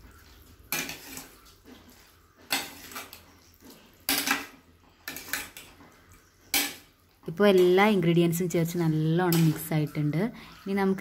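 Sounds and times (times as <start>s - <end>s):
spoon scraping a metal pan: 0.1s - 6.9s, 9.2s - 11.0s.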